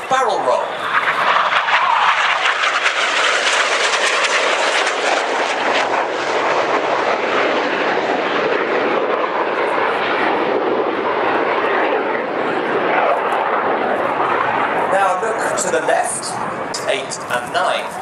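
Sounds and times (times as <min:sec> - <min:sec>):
jet flying past: 0:00.0 - 0:18.0.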